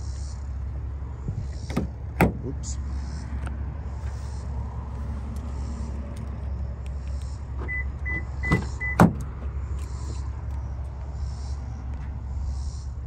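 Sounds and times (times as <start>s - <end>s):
car door latch clicks: 1.6s - 2.5s, 7.6s - 9.4s
short electronic beeps: 7.7s - 9.0s.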